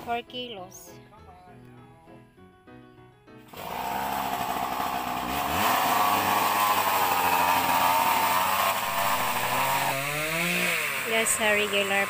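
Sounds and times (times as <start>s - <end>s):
small motor buzzing: 3.5s - 12.0s.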